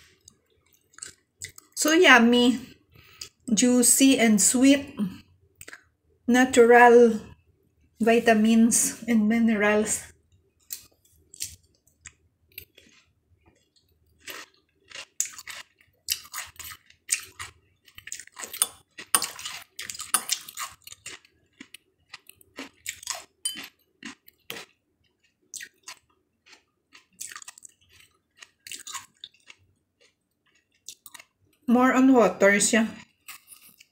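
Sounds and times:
person chewing melon: 0.0 - 1.8, 5.2 - 5.9, 10.2 - 31.6, 33.0 - 33.9.

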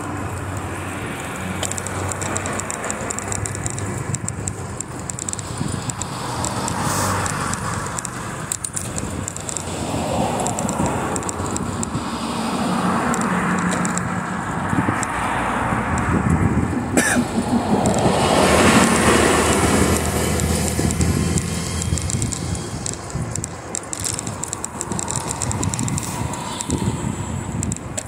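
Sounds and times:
passing traffic: 0.0 - 28.0
road rumble: 0.0 - 28.0
wind: 0.0 - 28.0
sharp click: 1.6 - 12.0, 18.7 - 28.0.

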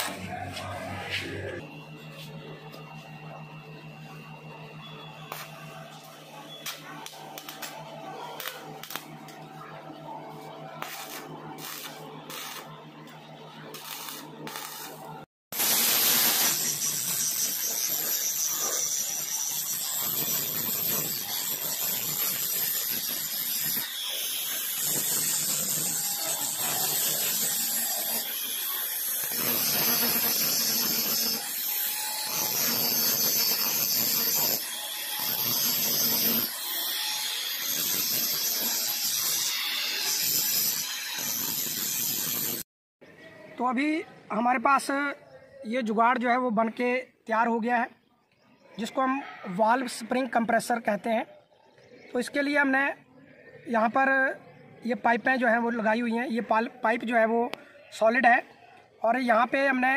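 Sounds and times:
welding arc crackling: 5.3 - 9.6, 10.4 - 42.6
angle grinder grinding steel: 10.4 - 42.6.

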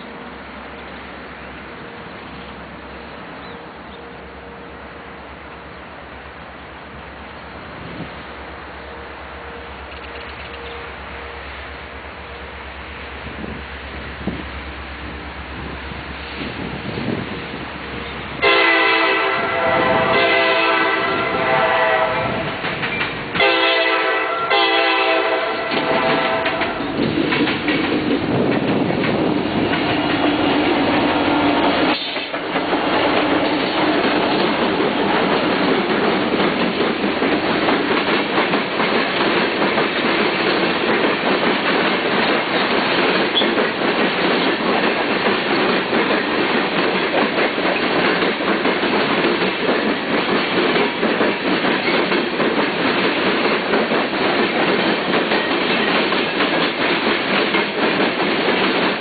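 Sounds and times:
diesel locomotive tone: 0.0 - 40.8, 42.2 - 45.2
train wheels clicking over rail joints: 8.9 - 11.4, 12.1 - 59.0.

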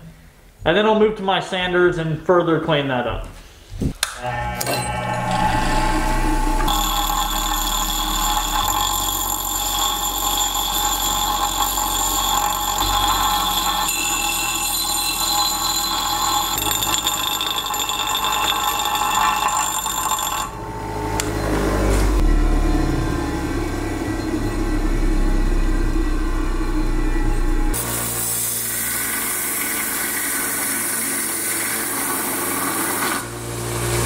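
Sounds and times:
bench grinder motor hum: 4.0 - 34.0
steel grinding whine: 4.0 - 34.0.

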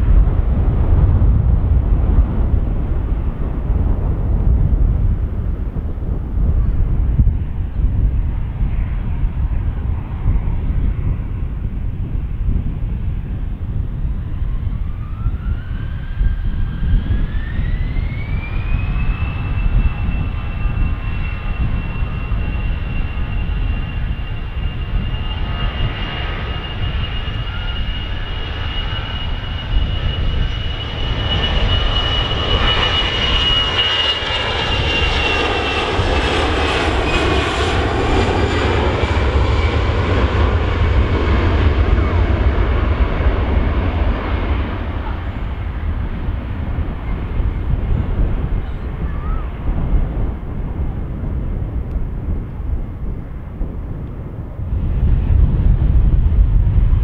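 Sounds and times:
jet engine whine: 0.0 - 57.0
low rumble: 0.0 - 57.0.

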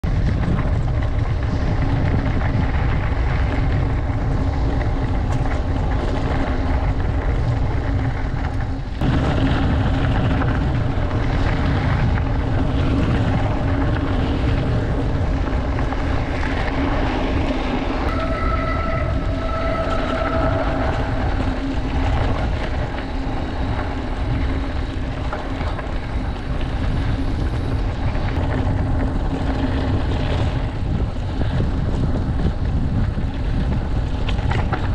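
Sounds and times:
bike tyres rolling over dirt: 0.0 - 34.9
wind buffeting microphone: 0.0 - 34.9
brief high whine: 18.1 - 21.6.

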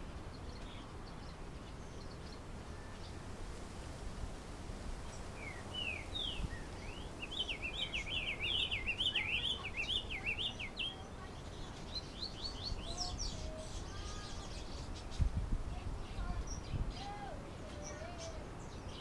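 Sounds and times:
bird singing whistled notes: 5.4 - 15.3.

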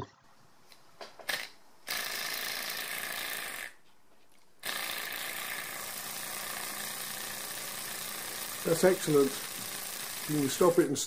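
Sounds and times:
small engine whirring with hiss: 1.3 - 3.7, 4.6 - 11.0.

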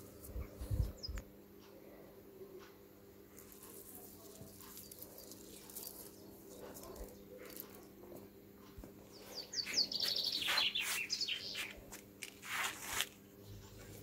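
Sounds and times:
faint low hum: 0.0 - 14.0
songbird chirping: 3.4 - 12.0.

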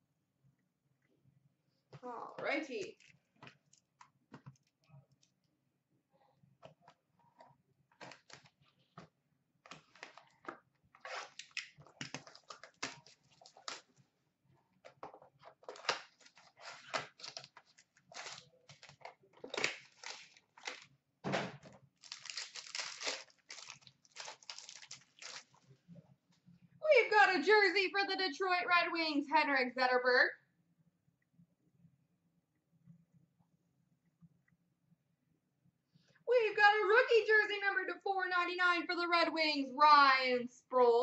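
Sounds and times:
cardboard and cards handled: 14.8 - 20.9.

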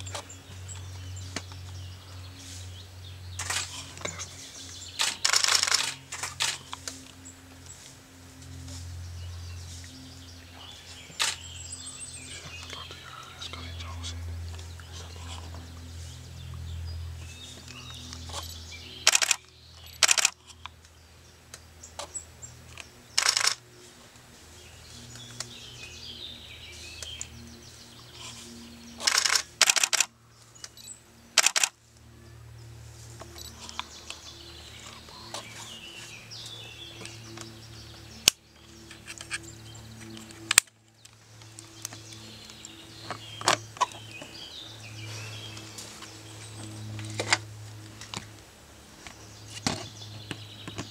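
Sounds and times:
songbirds chirping: 0.0 - 50.9
short bursts of noise: 4.9 - 6.7, 19.0 - 19.4, 23.2 - 23.6, 29.0 - 30.1, 31.4 - 31.8.

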